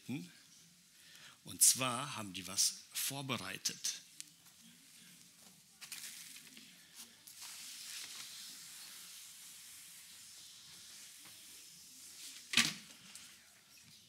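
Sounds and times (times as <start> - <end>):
rustling handling noise: 4.2 - 10.0.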